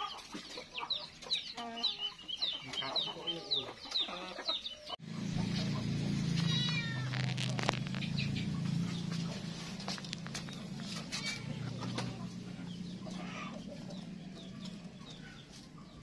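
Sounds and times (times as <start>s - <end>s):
steady low hum: 5.0s - 16.0s
cat meowing: 6.4s - 7.3s.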